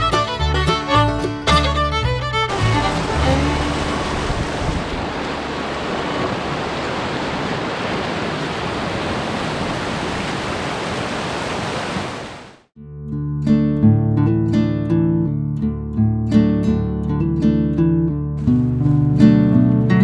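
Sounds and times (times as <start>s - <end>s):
river rapids rushing: 2.5s - 12.5s.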